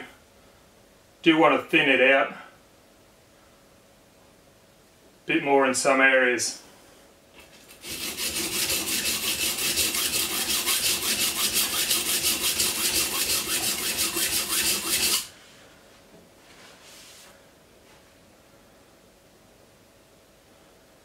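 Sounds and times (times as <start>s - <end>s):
knife scraping on sharpening stone: 7.8s - 15.3s
soft rustle: 15.4s - 18.3s.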